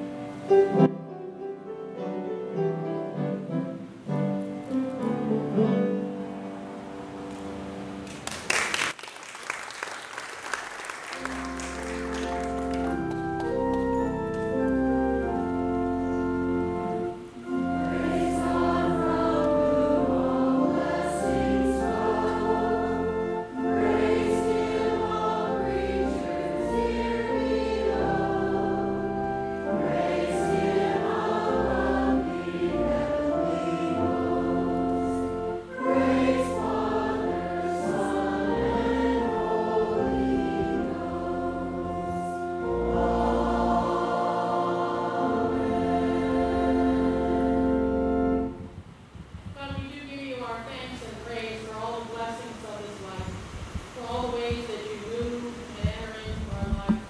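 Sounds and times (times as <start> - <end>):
congregation singing a hymn: 11.1 - 48.6.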